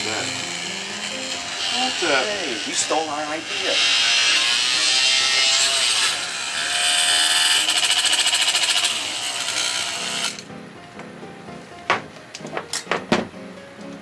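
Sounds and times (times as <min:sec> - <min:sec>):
electric sander motor whine: 0:00.0 - 0:10.4.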